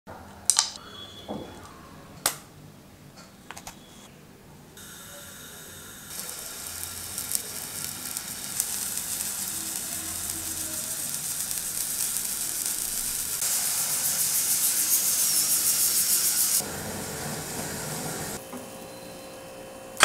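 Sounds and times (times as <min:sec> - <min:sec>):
gas burner flame hissing: 0:04.8 - 0:18.5
mango skin crackling over flame: 0:05.8 - 0:13.5.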